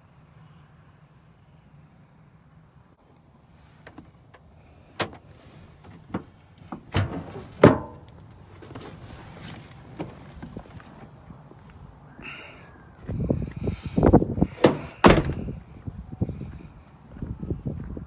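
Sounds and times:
truck door clicks and knocks: 5.0s - 5.2s, 5.9s - 8.0s, 14.6s - 15.5s
door shutting thunk: 14.6s - 15.6s.

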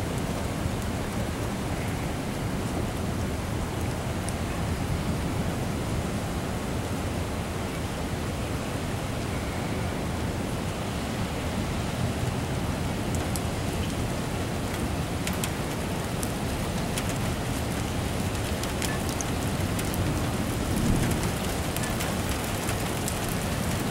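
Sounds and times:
heavy rain falling: 0.0s - 23.9s
low thunder rumble: 19.6s - 23.4s.

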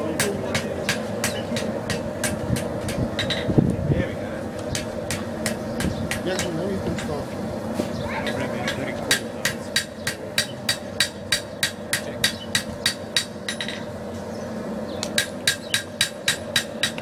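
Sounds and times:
steady hum: 0.0s - 17.0s
hammer striking steel on anvil: 0.2s - 3.5s, 4.7s - 7.2s, 8.7s - 13.9s, 15.1s - 17.0s.

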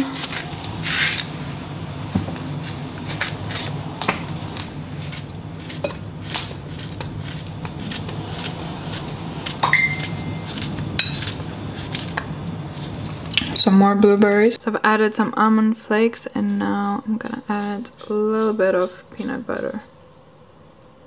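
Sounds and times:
steady low hum: 0.0s - 21.0s
knife slicing banana: 5.0s - 13.1s.

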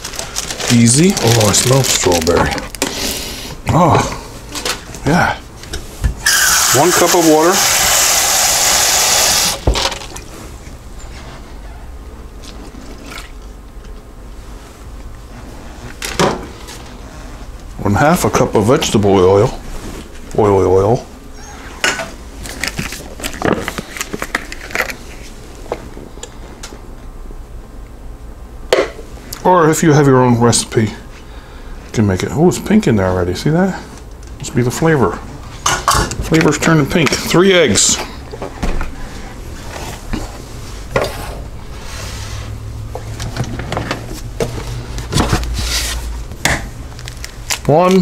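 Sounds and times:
steady low hum: 7.4s - 48.0s.

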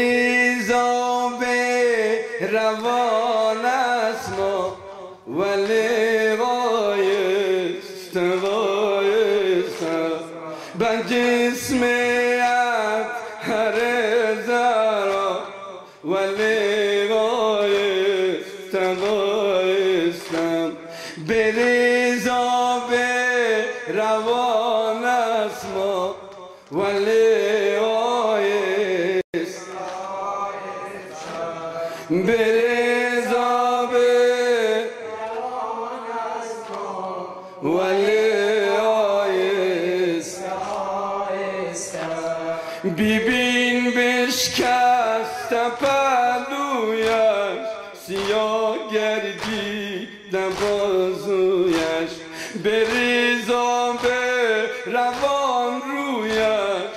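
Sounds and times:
man chanting lament over pa: 0.0s - 35.0s, 37.2s - 56.9s.

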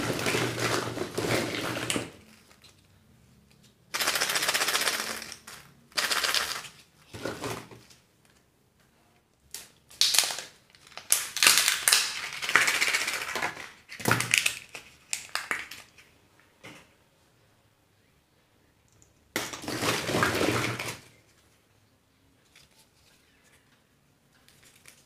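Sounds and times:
wrappers crinkling and tearing: 10.0s - 15.9s, 24.5s - 25.0s.

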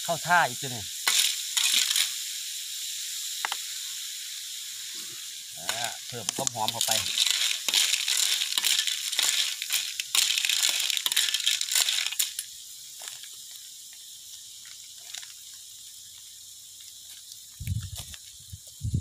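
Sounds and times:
food sizzling in a wok: 0.0s - 19.0s
metal spatula scraping a pan: 7.1s - 12.4s.

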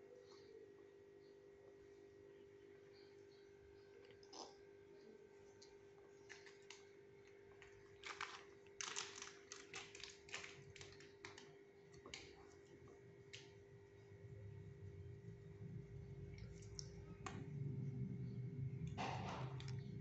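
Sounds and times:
plastic wrapper crinkling: 7.6s - 12.4s.

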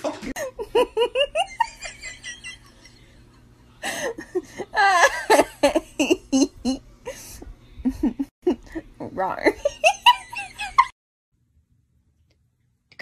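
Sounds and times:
person laughing: 0.0s - 3.2s, 3.8s - 9.0s.

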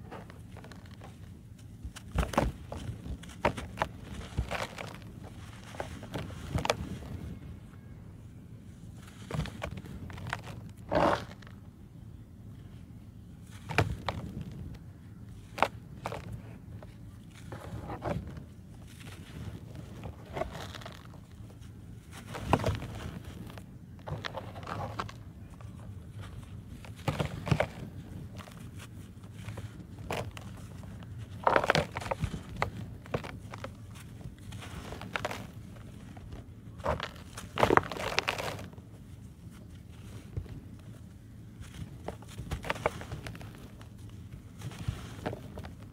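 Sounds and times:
hands crumbling dry dirt: 0.0s - 7.4s, 13.4s - 45.9s
soil sifting down: 18.8s - 40.3s.

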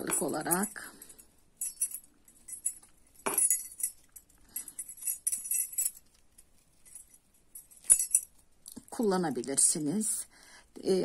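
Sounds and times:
metal keyring jingling: 0.0s - 8.6s.

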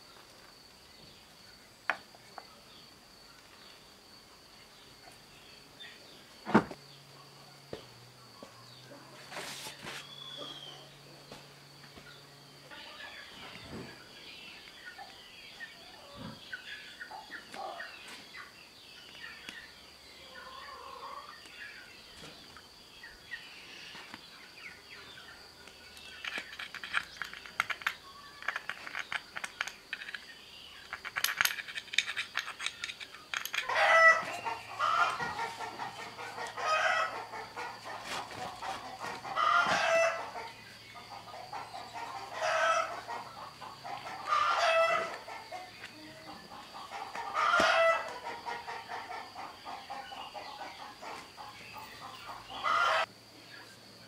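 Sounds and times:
metal bowl clicking and rubbing: 26.1s - 33.7s
chicken calling: 33.6s - 53.1s.

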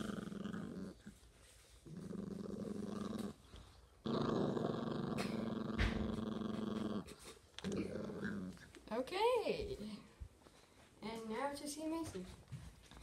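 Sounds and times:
puppy growling: 0.0s - 1.2s, 1.8s - 9.0s.

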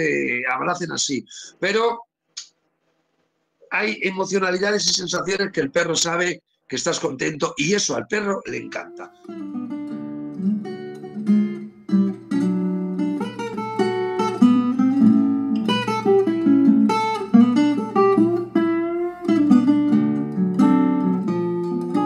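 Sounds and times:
acoustic guitar music: 8.5s - 22.0s.

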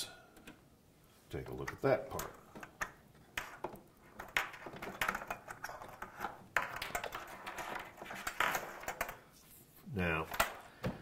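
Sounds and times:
plugs clicking and rattling: 1.4s - 9.2s.

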